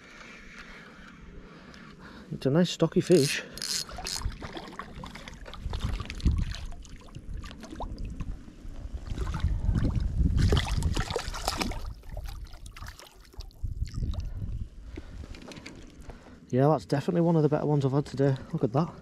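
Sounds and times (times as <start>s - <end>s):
fish splashing and thrashing in water: 3.6s - 14.4s
wind rumble on microphone: 3.8s - 16.3s.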